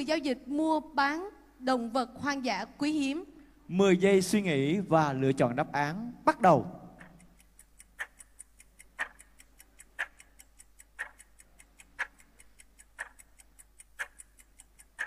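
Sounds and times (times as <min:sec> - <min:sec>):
countdown timer ticking: 0:06.3 - 0:15.0.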